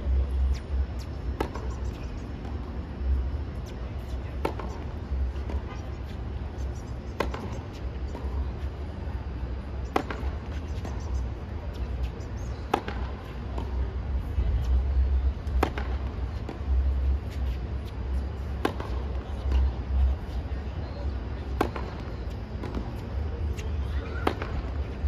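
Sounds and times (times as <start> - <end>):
steady low rumble: 0.0 - 25.0
tennis balls struck with rackets: 1.3 - 2.8, 3.6 - 5.9, 6.6 - 8.7, 9.8 - 11.9, 12.6 - 13.9, 15.4 - 17.5, 18.2 - 19.7, 21.4 - 25.0.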